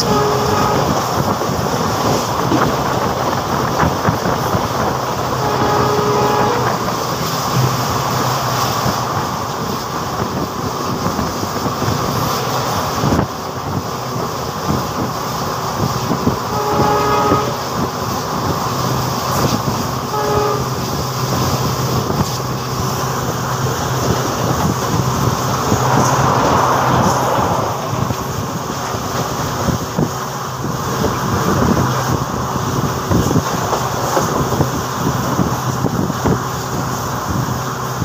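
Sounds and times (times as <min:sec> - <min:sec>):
train horn: 0:00.0 - 0:02.2, 0:04.2 - 0:07.2, 0:16.2 - 0:18.0, 0:19.4 - 0:21.6
train wheels rumbling on rail: 0:00.0 - 0:38.0.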